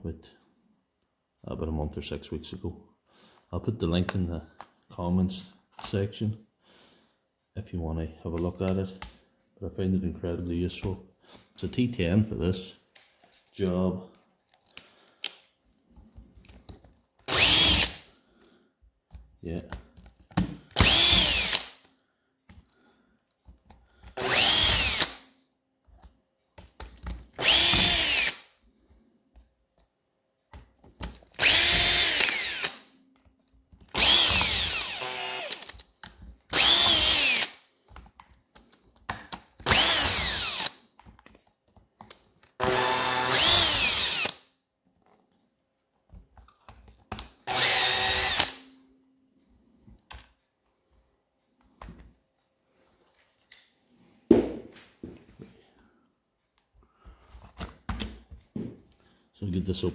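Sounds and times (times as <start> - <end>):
cordless screwdriver motor whine: 17.3 - 18.0, 24.2 - 25.2, 27.4 - 28.4, 31.4 - 32.8, 34.0 - 35.8, 36.5 - 37.6, 39.7 - 40.8, 42.6 - 44.4, 47.5 - 48.6.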